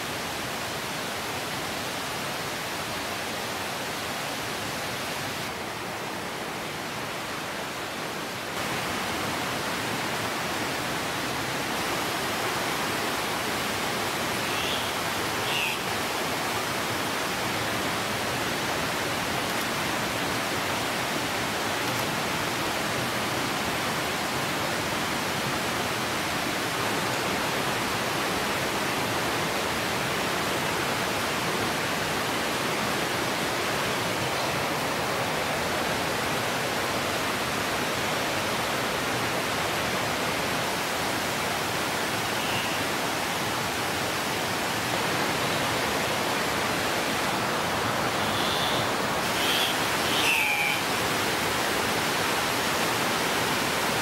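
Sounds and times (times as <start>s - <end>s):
faint short bird calls: 14.4s - 15.9s, 42.2s - 42.9s, 48.2s - 50.9s.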